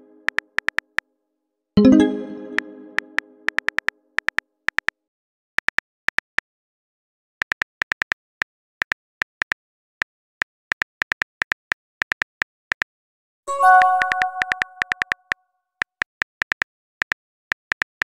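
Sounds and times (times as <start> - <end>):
phone keyboard typing ticks: 0.1 - 1.0, 2.5 - 4.9, 13.6 - 18.0.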